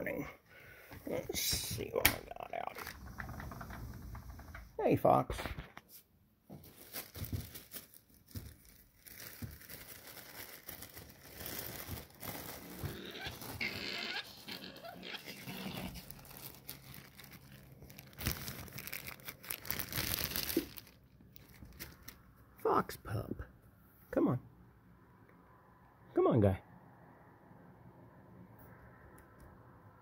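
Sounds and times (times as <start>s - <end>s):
crackling: 1.1s - 5.8s, 6.9s - 22.2s.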